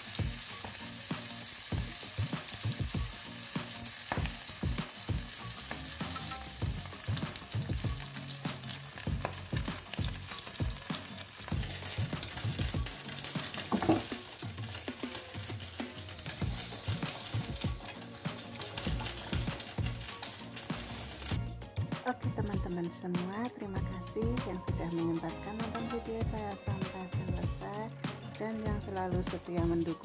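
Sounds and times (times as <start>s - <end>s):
fish sizzling in frying pan: 0.0s - 21.4s
wooden spatula knocking on pan: 13.4s - 14.2s.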